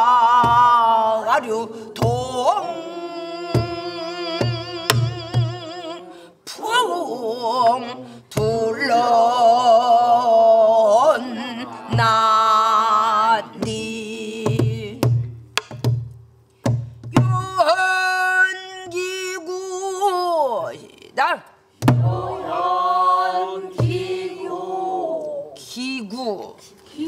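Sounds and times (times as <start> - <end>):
woman singing with vibrato: 0.0 - 15.0.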